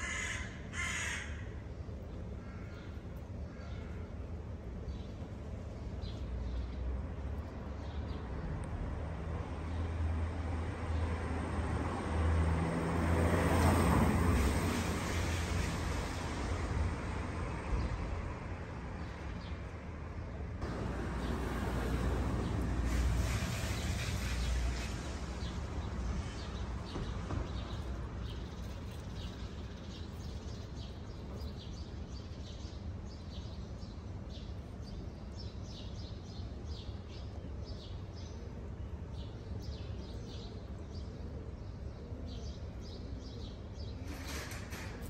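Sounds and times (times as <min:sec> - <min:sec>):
low outdoor rumble: 0:20.0 - 0:31.6
small birds chirping: 0:21.1 - 0:38.2.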